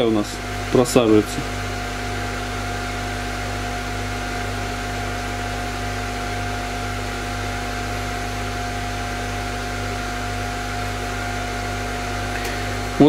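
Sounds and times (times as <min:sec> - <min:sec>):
electrical hum and whirring: 0:00.0 - 0:13.0.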